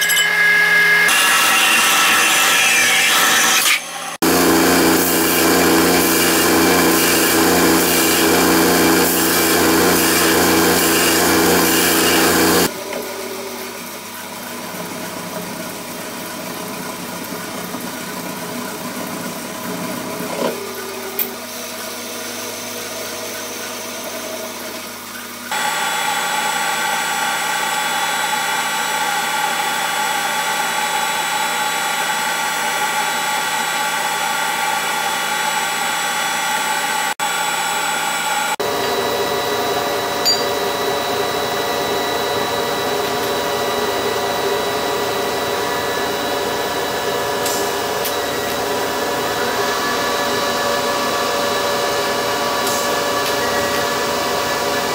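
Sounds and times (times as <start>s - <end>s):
lathe drilling metal bar: 0.0s - 12.7s, 25.3s - 54.9s
electric machine hum: 3.8s - 15.5s, 35.6s - 54.9s.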